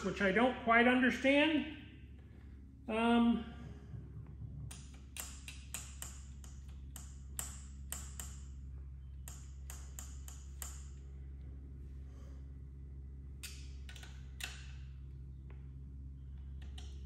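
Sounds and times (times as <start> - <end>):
metallic tool clicks and taps: 4.7 - 8.5, 9.2 - 11.0.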